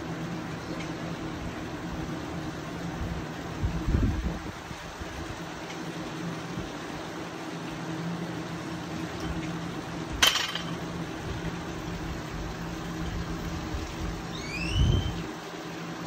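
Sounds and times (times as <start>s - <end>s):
low background hum: 0.0s - 16.0s
short rising squeaks: 14.3s - 15.3s.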